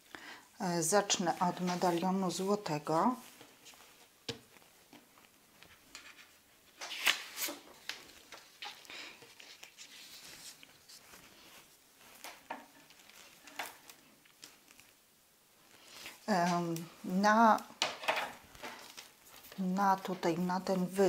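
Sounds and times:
paper rustling and sliding: 3.2s - 15.0s.

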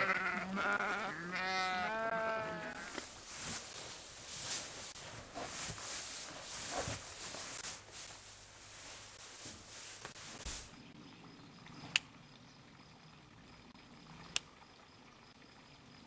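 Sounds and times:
rustling in straw: 2.7s - 10.8s.

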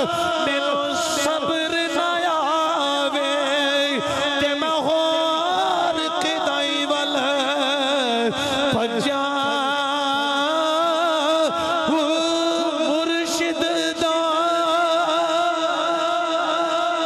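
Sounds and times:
man chanting through microphone: 0.0s - 17.0s.

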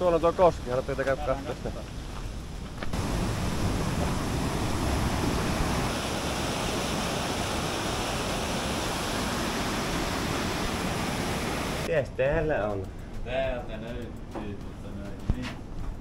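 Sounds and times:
water rushing over rocks: 2.9s - 11.9s.

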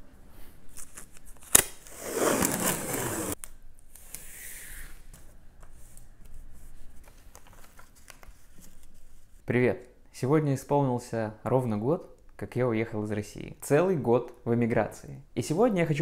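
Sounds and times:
tape and paper rustling: 0.7s - 4.2s, 7.0s - 9.2s
tape ripping off roll: 0.8s - 3.4s.

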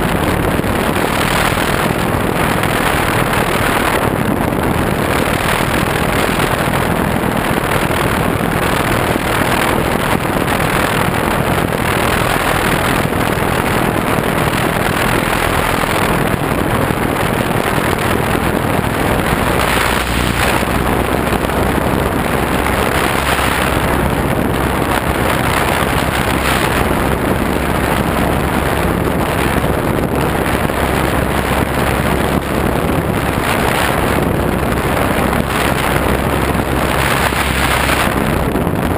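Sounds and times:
propeller noise: 0.0s - 38.9s
wind rushing: 0.0s - 38.9s.

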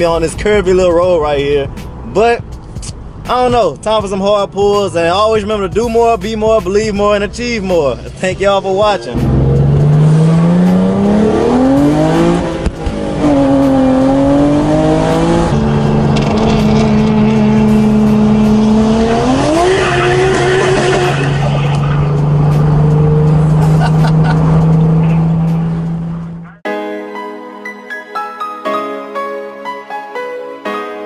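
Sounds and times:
car engine accelerating through gears: 9.1s - 26.6s.

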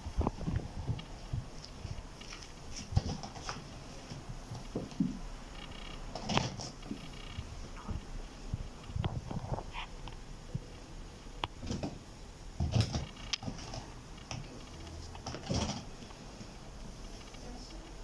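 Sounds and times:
kitten paws thumping and tapping: 0.1s - 5.3s.

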